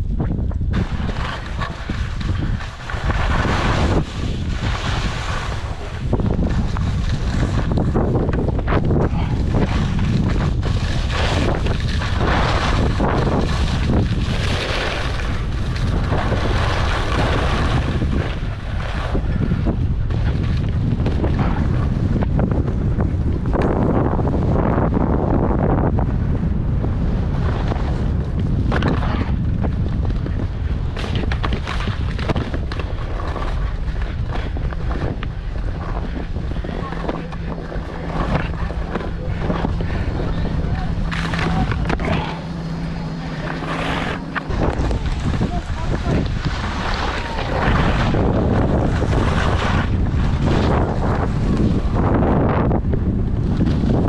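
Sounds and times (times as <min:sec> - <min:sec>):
wind buffeting microphone: 0:00.0 - 0:54.0
skis running over snow: 0:00.2 - 0:25.8, 0:27.0 - 0:54.0
ski edges scraping: 0:00.7 - 0:19.3, 0:30.9 - 0:52.2.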